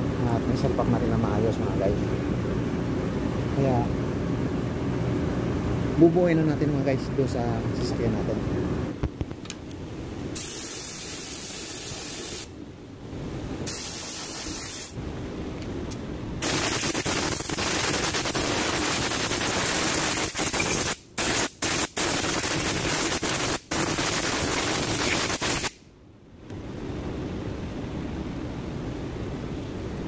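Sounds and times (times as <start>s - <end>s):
spray nozzle hissing: 10.4s - 12.5s, 13.7s - 15.0s, 16.4s - 25.8s.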